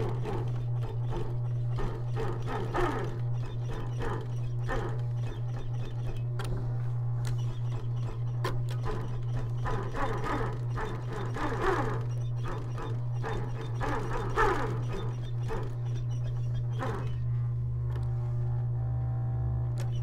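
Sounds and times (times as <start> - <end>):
sewing machine stitching: 0.0 - 6.5, 7.4 - 17.2
sewing machine motor humming: 0.0 - 20.0.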